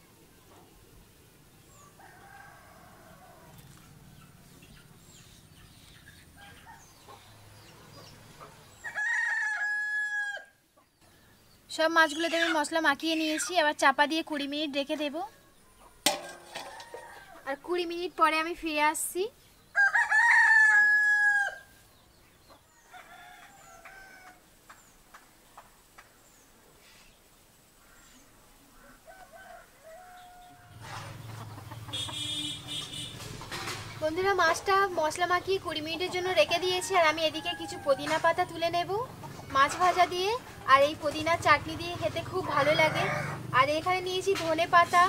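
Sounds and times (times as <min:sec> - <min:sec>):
faint chicken calls: 0:01.6 - 0:11.4, 0:19.6 - 0:25.1, 0:26.0 - 0:34.0
rooster crowing: 0:01.8 - 0:03.6, 0:08.8 - 0:10.6, 0:19.8 - 0:21.7, 0:22.7 - 0:24.4, 0:28.8 - 0:30.8, 0:42.7 - 0:43.5.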